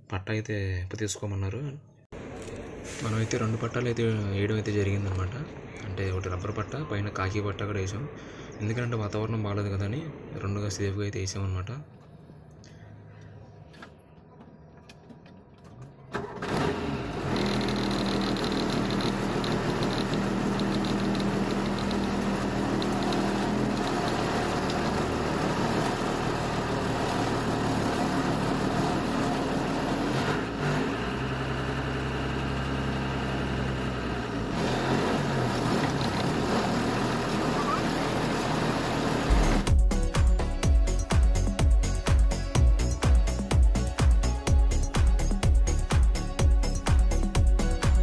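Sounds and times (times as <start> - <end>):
diesel engine humming: 16.2 - 48.0.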